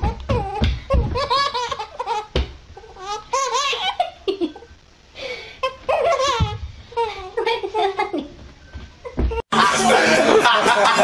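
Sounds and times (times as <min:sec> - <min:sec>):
high-pitched hearty laughter: 0:09.5 - 0:11.0.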